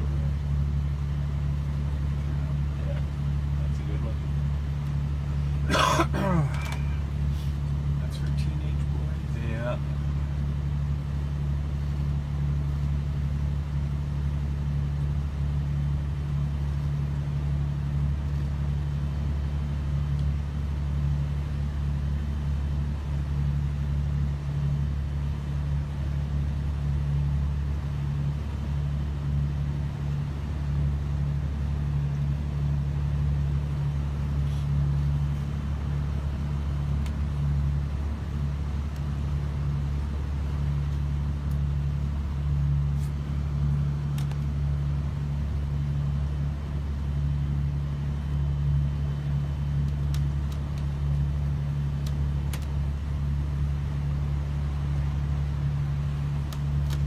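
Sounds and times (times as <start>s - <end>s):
boat engine droning: 0.0s - 16.7s.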